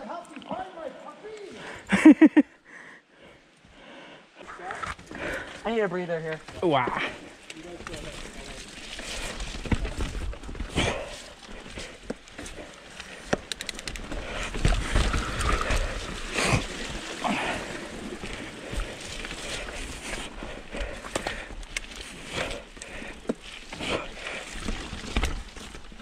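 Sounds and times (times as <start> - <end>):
bike tyres rolling on dirt: 4.7 - 26.0
bike knocking and rattling: 6.4 - 26.0.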